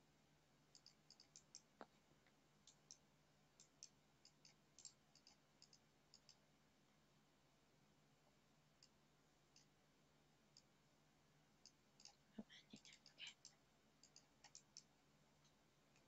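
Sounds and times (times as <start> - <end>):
faint low hum: 0.0 - 16.0
computer mouse clicks: 0.7 - 2.0, 2.6 - 6.4, 8.8 - 9.7, 10.5 - 10.7, 11.6 - 12.2, 12.8 - 16.0.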